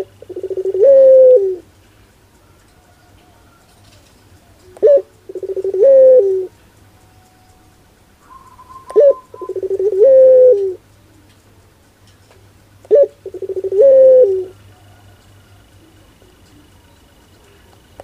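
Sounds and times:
dove cooing: 0.0s - 1.7s, 2.4s - 6.6s, 8.2s - 11.3s, 12.8s - 17.7s.

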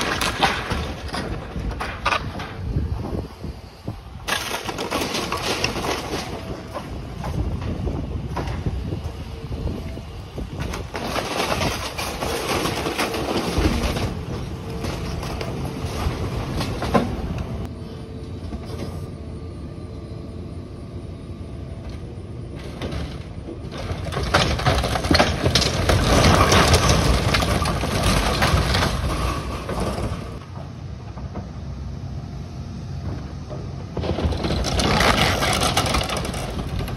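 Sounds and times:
debris crunching and cracking: 0.0s - 3.3s, 4.2s - 9.2s, 10.3s - 17.7s, 22.6s - 30.5s, 33.9s - 36.9s
diesel engine running: 0.0s - 36.9s.

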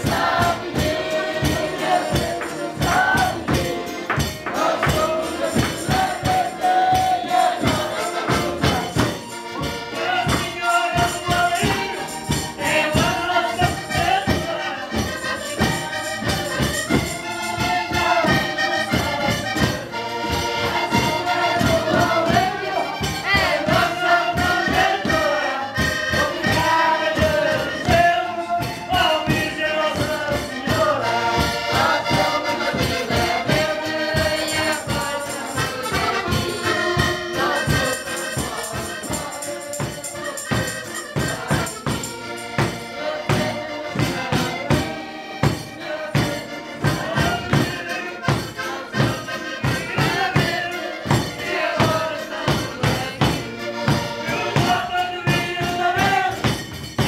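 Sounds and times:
accordion: 0.0s - 57.0s
steady quick beat: 0.0s - 57.0s
person singing: 45.8s - 56.5s.

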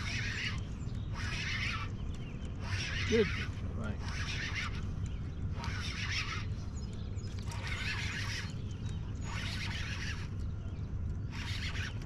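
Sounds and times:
fishing reel whirring: 0.0s - 1.9s, 2.6s - 4.9s, 5.5s - 6.7s, 7.4s - 8.6s, 9.2s - 10.4s, 11.3s - 12.0s
steady low rumble: 0.0s - 12.0s.

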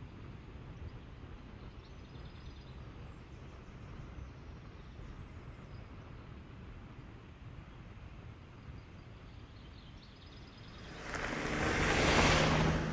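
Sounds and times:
faint birds chirping: 8.9s - 12.9s
wind and road rumble: 10.4s - 12.9s.

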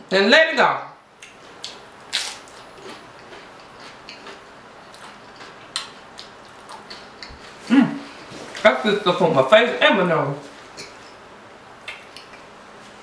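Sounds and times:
chewing crunchy chips: 1.3s - 7.6s
wet mouth clicks: 11.8s - 12.5s.

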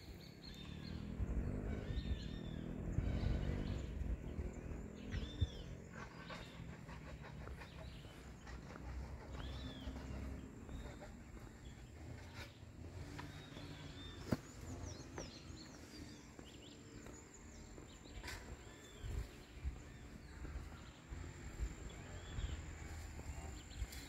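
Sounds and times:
small birds chirping: 0.0s - 24.0s
low background rumble: 0.5s - 12.3s.

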